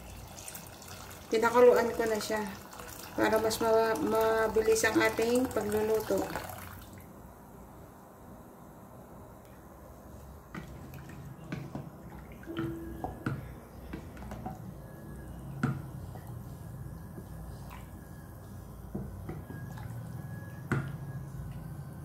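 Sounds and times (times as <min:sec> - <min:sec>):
liquid dripping and plopping: 0:10.5 - 0:22.0.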